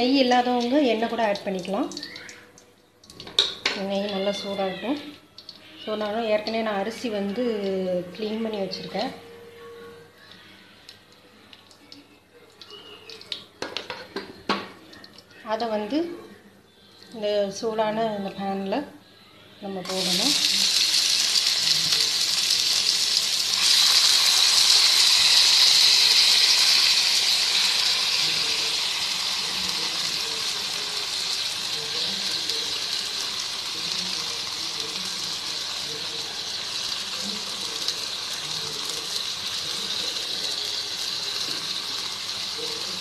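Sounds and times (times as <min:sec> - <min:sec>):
rice sizzling in hot ghee: 0:19.8 - 0:43.0.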